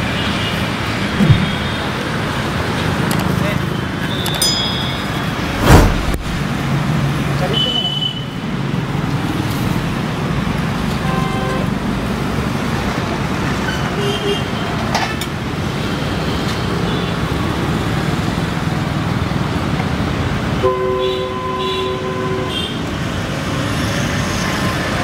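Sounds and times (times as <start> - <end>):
road traffic rumble: 0.0 - 7.6
horn toots: 1.1 - 2.0.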